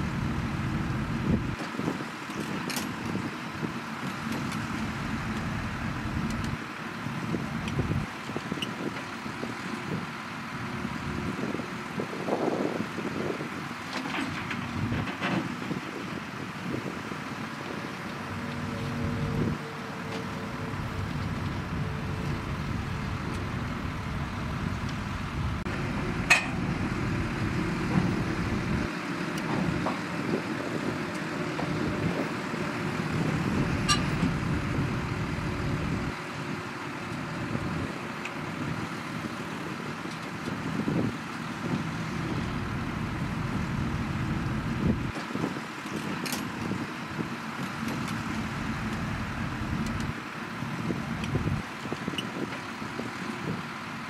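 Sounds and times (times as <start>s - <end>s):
bulldozer diesel engine running: 0.0s - 54.0s
sharp metallic clanks: 26.2s - 26.7s, 33.8s - 34.2s.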